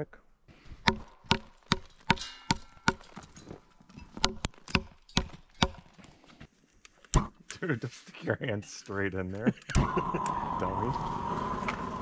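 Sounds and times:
steel blade chopping wood: 0:00.8 - 0:03.3, 0:04.1 - 0:05.9.

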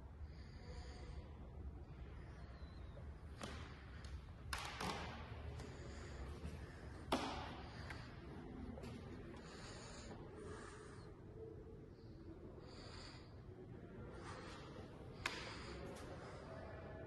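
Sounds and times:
low steady room hum: 0:00.0 - 0:17.0
sharp taps with echoes: 0:03.4 - 0:08.2, 0:15.2 - 0:16.1.

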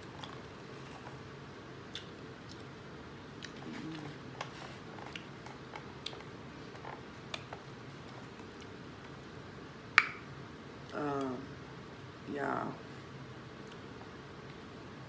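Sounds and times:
chewing and mouth clicks: 0:01.9 - 0:09.2.

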